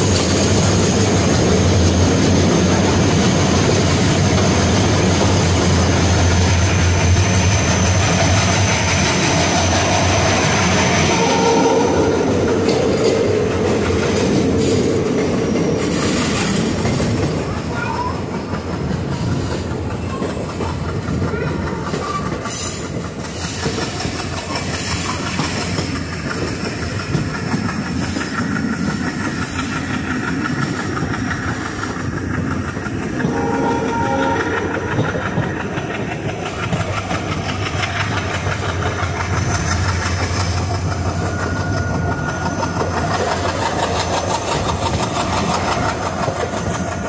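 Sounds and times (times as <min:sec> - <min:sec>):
train running rumble: 0:00.0 - 0:47.0
wheels clicking over rail joints: 0:12.3 - 0:47.0.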